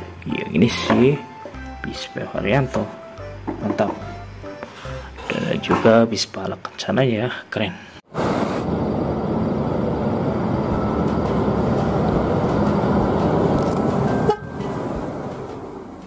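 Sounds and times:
bus engine and road noise: 0:08.2 - 0:16.0
horn tooting: 0:13.9 - 0:15.1.

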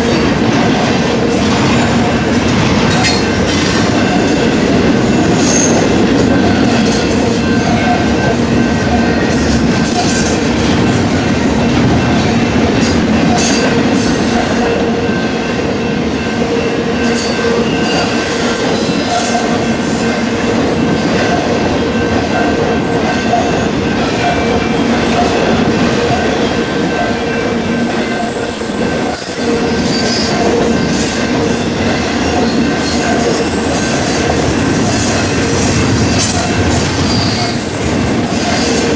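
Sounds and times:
train wheels rumbling on rails: 0:00.0 - 0:38.9
high-pitched wheel squeal: 0:01.8 - 0:08.0, 0:23.3 - 0:30.6, 0:31.6 - 0:38.9.

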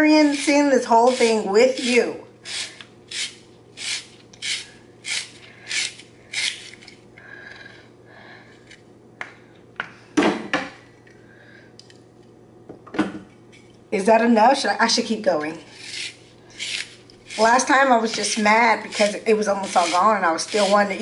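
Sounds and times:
spiralizer cutting zucchini: 0:00.0 - 0:06.8, 0:15.6 - 0:21.0
loud rasp: 0:00.2 - 0:06.8, 0:15.7 - 0:21.0
squeaky scraping: 0:15.6 - 0:21.0.

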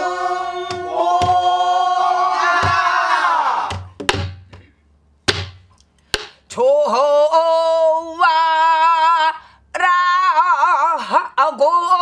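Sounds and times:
barrel drum strokes: 0:00.6 - 0:01.6, 0:02.5 - 0:03.0.

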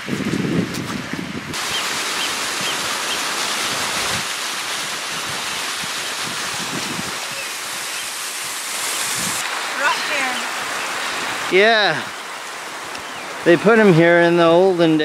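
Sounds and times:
waterfall splashing over rocks: 0:01.5 - 0:15.0.

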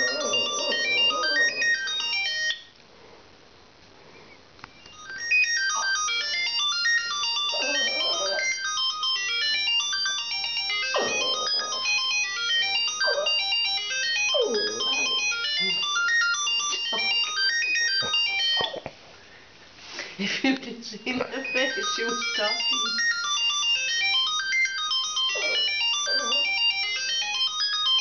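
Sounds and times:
dog howling: 0:00.0 - 0:01.9, 0:07.3 - 0:08.6, 0:11.0 - 0:12.1, 0:12.9 - 0:13.6, 0:14.2 - 0:15.6, 0:25.4 - 0:26.7
phone ringtone melody: 0:00.0 - 0:02.7, 0:04.9 - 0:18.8, 0:21.3 - 0:28.0.

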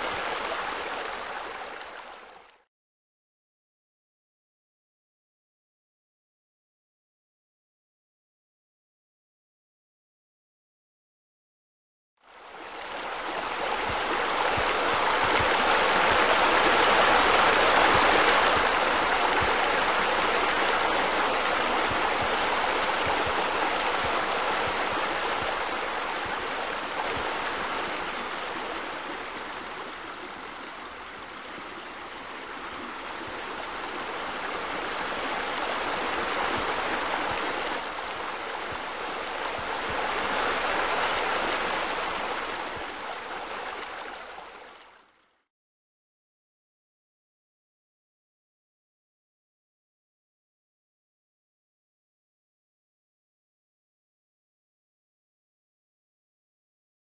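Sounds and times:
splashing pool water features: 0:00.0 - 0:02.6, 0:12.3 - 0:45.4.

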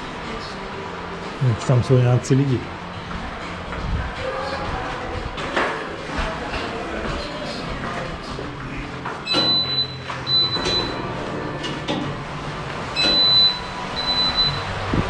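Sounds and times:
turnstile arms clunking: 0:09.0 - 0:12.3
short high beeps: 0:09.3 - 0:11.0, 0:13.0 - 0:14.8.

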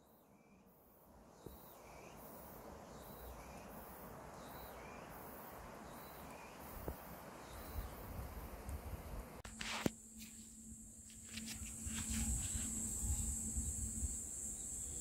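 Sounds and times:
wind noise: 0:06.6 - 0:09.4, 0:10.2 - 0:15.0.

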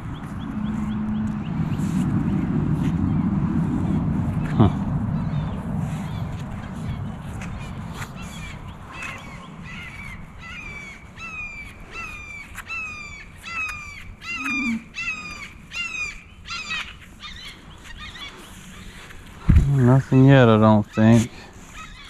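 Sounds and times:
bird calling: 0:04.4 - 0:22.0.

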